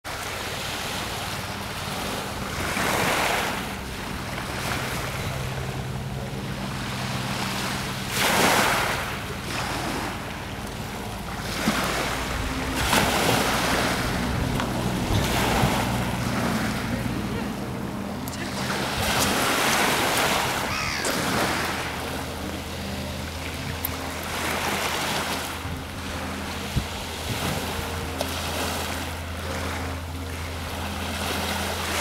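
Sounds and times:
low hum: 0.1 - 32.0
waves washing over shingle: 0.1 - 32.0
wind buffeting microphone: 0.8 - 21.8, 25.5 - 28.2.

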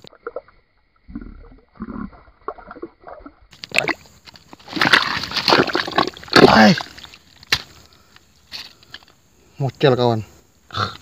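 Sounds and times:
water sloshing and gurgling: 0.0 - 7.6
rough splashing: 2.4 - 7.7.

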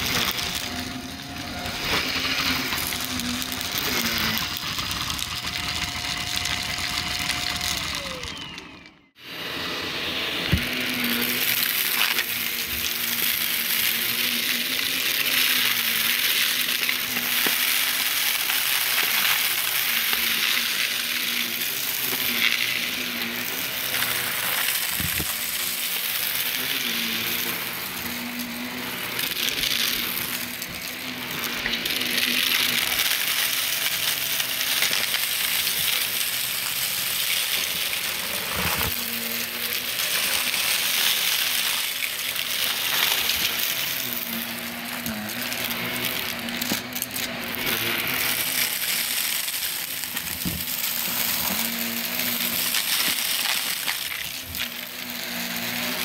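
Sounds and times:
crunchy crackling rattle of debris: 0.0 - 8.4, 23.4 - 26.8, 28.4 - 54.8
vacuum cleaner running over carpet: 0.0 - 56.0.

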